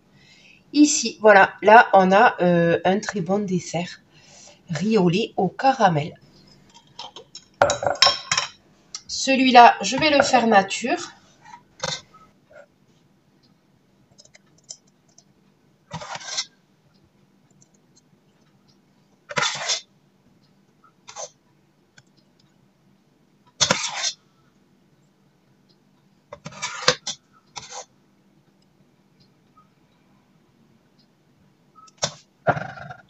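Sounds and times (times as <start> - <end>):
metal ladle scraping pot: 23.6 - 24.2.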